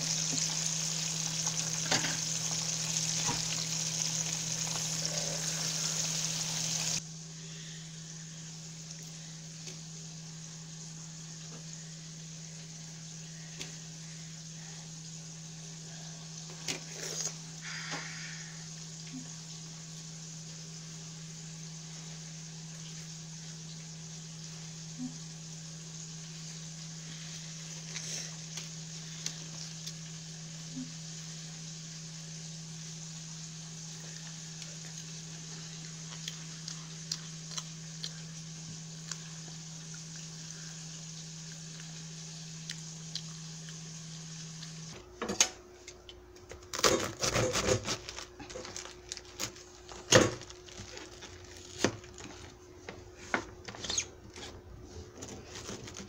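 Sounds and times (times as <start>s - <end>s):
low hum: 0.0s - 16.5s
steady hiss: 0.0s - 45.0s.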